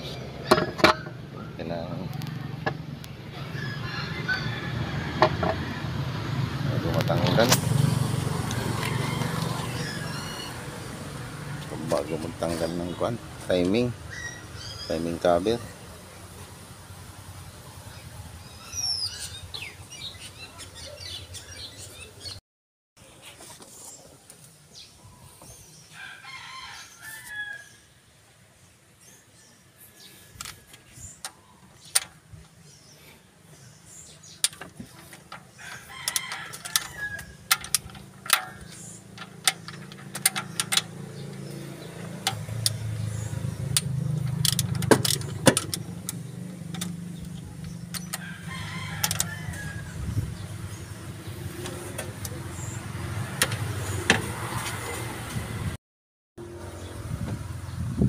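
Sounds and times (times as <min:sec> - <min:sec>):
rooster crowing: 0:03.3 - 0:06.3, 0:08.4 - 0:11.0, 0:25.9 - 0:27.9, 0:35.6 - 0:37.6, 0:48.1 - 0:50.0.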